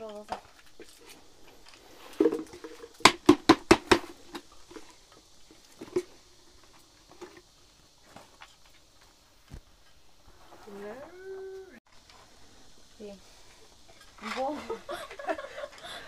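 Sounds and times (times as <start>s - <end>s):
sharp knocks: 2.2s - 4.4s.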